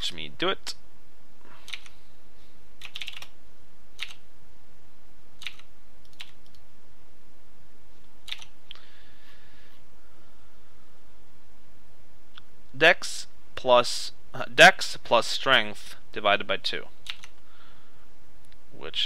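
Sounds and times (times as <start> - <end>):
keyboard keystrokes: 2.8 - 3.3, 5.4 - 6.6, 8.3 - 8.5, 17.1 - 17.4.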